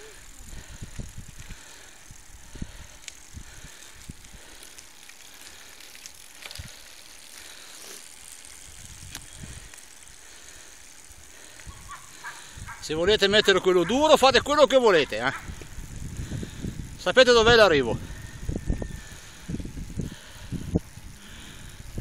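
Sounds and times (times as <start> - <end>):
wind buffeting on microphone: 0.2 - 4.6, 8.6 - 9.8, 11.6 - 22.0
rushing wind and road noise: 11.6 - 22.0.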